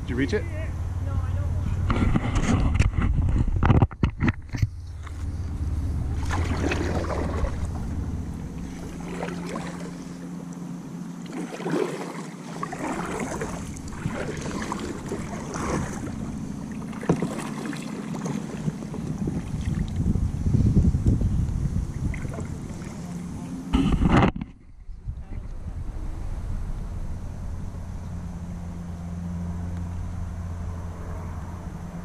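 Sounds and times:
wind rumbling on microphone: 0.8s - 10.3s, 12.7s - 32.0s
paddle splashing in water: 6.0s - 20.1s, 21.9s - 24.5s.

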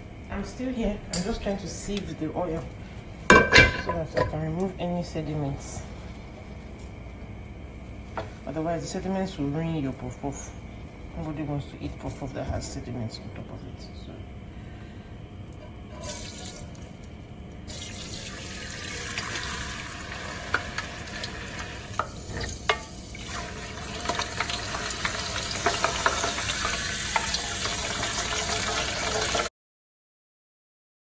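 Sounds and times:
utensils clinking: 3.3s - 4.4s
water running from tap: 16.0s - 16.9s, 17.7s - 29.5s.

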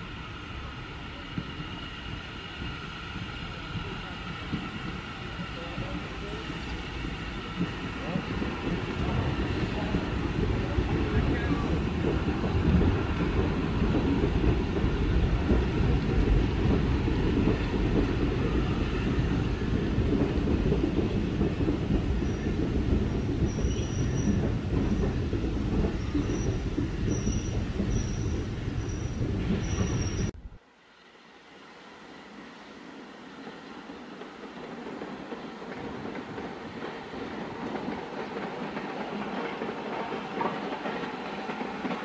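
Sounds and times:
train wheels rumbling on track: 0.0s - 30.6s, 32.3s - 42.0s
high wheel squeal: 26.0s - 30.3s.

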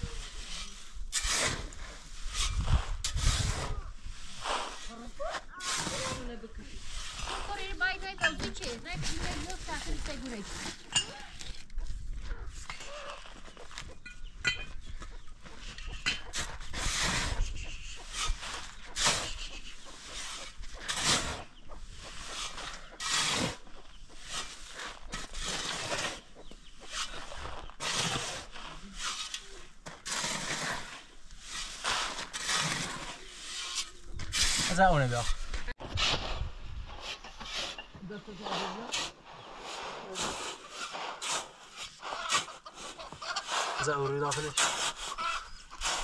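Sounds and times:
chickens clucking: 42.0s - 46.0s.

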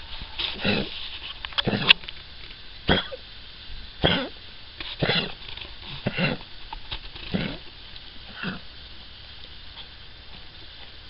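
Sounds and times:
dog coughing: 2.9s - 3.2s, 4.0s - 4.4s, 5.0s - 5.4s, 6.0s - 6.5s.

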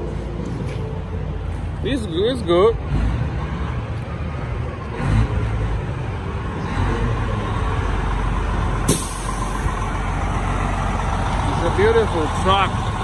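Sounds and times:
diesel truck engine rumbling: 0.0s - 13.0s.

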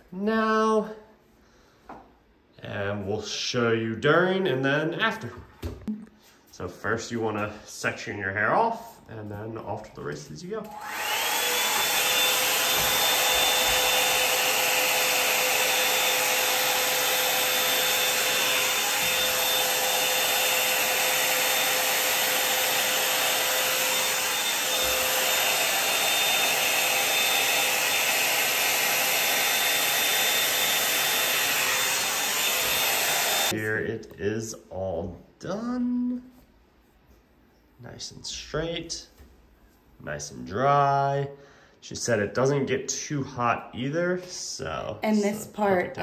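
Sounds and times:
hot air brush whining: 10.6s - 33.6s.

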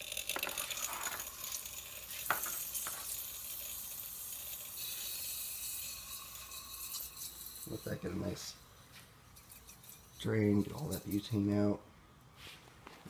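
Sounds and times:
gas hissing: 0.0s - 8.8s.

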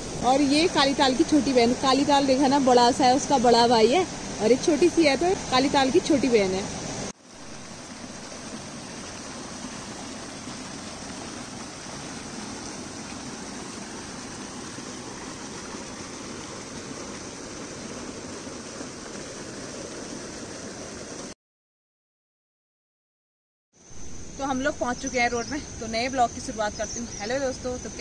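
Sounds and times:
waterfall splashing over rocks: 0.0s - 21.4s.

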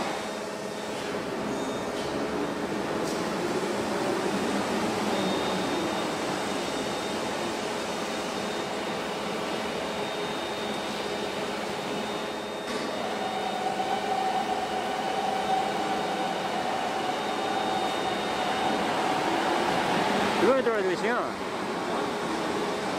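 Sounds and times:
cnc router humming and whining: 5.2s - 22.9s.

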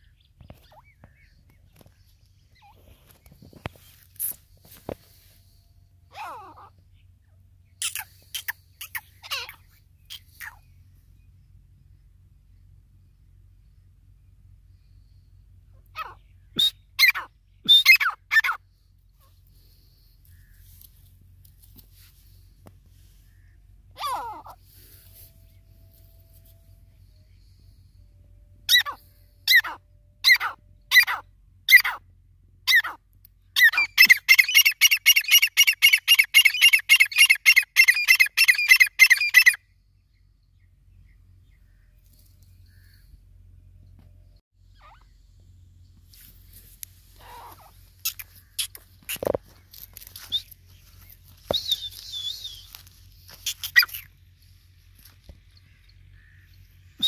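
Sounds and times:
francolin calling: 33.6s - 39.6s, 46.4s - 57.0s.

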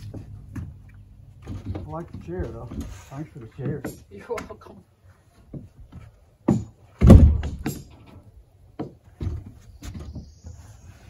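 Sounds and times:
wooden knocks and thumps: 0.0s - 4.7s, 5.3s - 10.6s.

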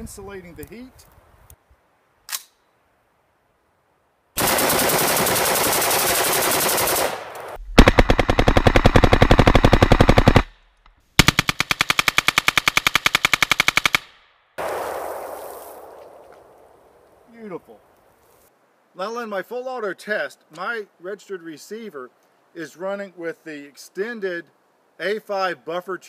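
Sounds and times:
single click: 2.3s - 2.6s
automatic rifle fire: 4.4s - 10.5s, 11.2s - 15.2s.

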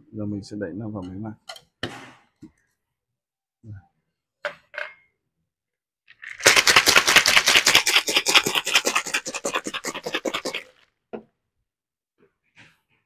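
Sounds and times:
ice rattling in shaker bottle: 6.1s - 10.8s.

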